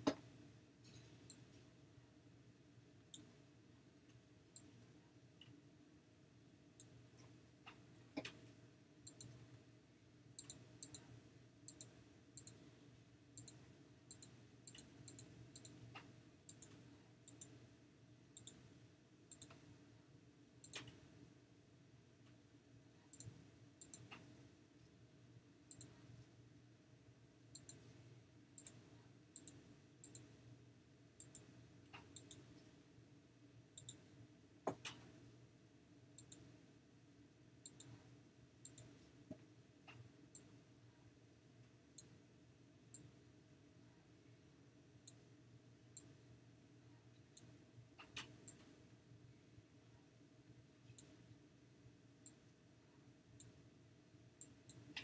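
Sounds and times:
computer mouse clicks: 0:00.8 - 0:01.6, 0:03.1 - 0:03.3, 0:06.8 - 0:08.4, 0:09.0 - 0:09.4, 0:10.4 - 0:11.1, 0:11.7 - 0:12.7, 0:13.4 - 0:17.6, 0:18.4 - 0:18.6, 0:19.3 - 0:19.7, 0:20.6 - 0:21.0, 0:23.1 - 0:24.3, 0:25.7 - 0:26.0, 0:27.5 - 0:28.0, 0:28.6 - 0:28.8, 0:29.4 - 0:30.3, 0:31.2 - 0:32.6, 0:33.8 - 0:34.0, 0:34.7 - 0:35.1, 0:36.2 - 0:36.5, 0:37.6 - 0:38.0, 0:38.6 - 0:39.0, 0:47.3 - 0:48.7, 0:50.9 - 0:51.2.

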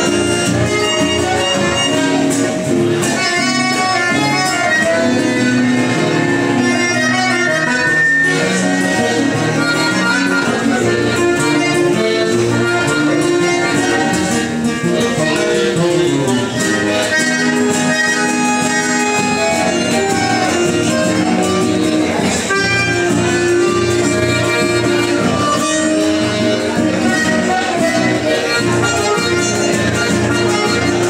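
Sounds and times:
guitar: 0:00.0 - 0:31.0.

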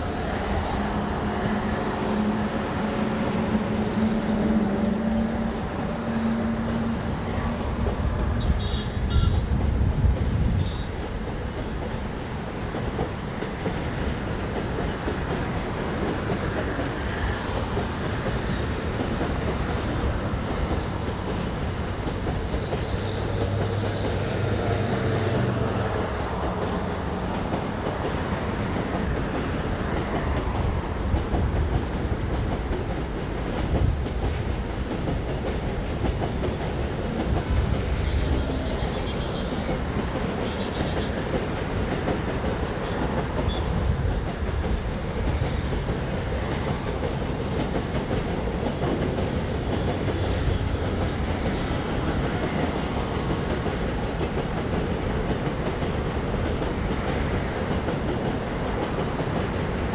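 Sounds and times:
train wheels clattering on rails: 0:00.0 - 0:59.9
high wheel squeal: 0:20.3 - 0:20.8, 0:21.4 - 0:23.3.

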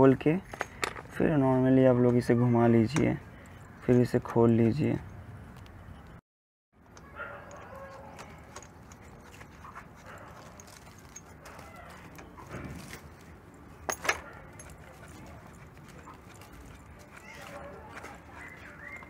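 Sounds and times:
spanner clicking and scraping on bolt: 0:00.4 - 0:01.2.

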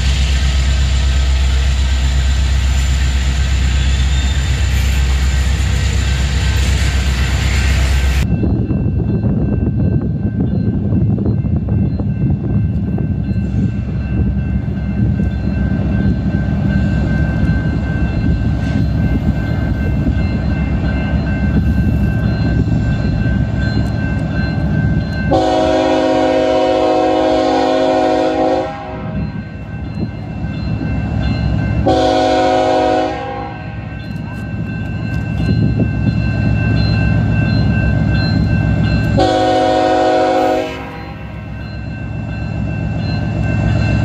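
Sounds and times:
diesel locomotives rumbling: 0:00.0 - 0:44.0
train air horn blasts: 0:25.3 - 0:29.2, 0:31.8 - 0:33.7, 0:39.2 - 0:41.4.

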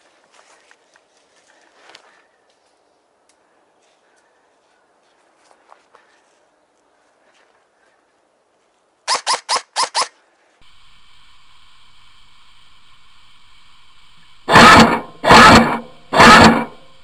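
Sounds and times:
airsoft rifle full-auto bursts: 0:09.1 - 0:17.0
faint steady hum: 0:10.3 - 0:17.0.

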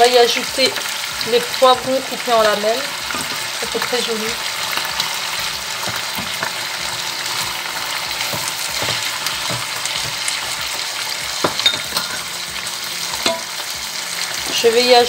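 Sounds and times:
food sizzling in oil: 0:00.0 - 0:15.0
wooden spoon scraping a pot: 0:04.6 - 0:12.2.

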